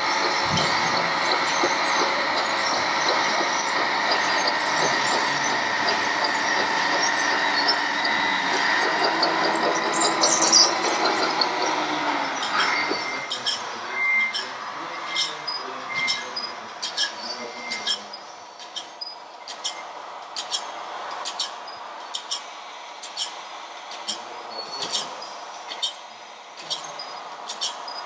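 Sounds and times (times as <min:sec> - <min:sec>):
mechanical whine of toy vehicles: 0:00.0 - 0:28.0
short beeps: 0:12.5 - 0:16.4.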